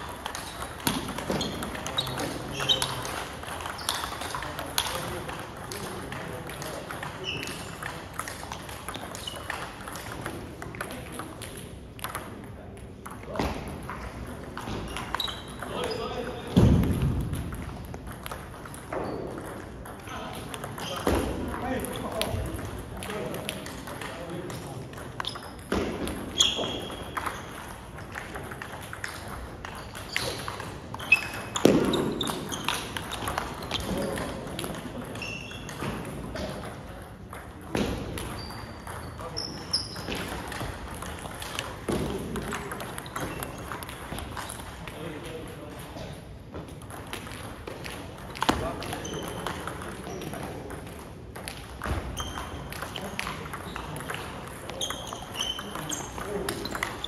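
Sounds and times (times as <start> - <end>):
table tennis balls clicking: 0.0 - 57.0
shoe squeaks: 1.2 - 4.2, 7.2 - 7.8, 9.2 - 9.5, 14.8 - 16.2, 25.2 - 25.7, 26.3 - 27.5, 29.8 - 34.1, 35.1 - 35.9, 38.3 - 40.4, 48.6 - 50.2, 52.1 - 53.0, 54.7 - 57.0.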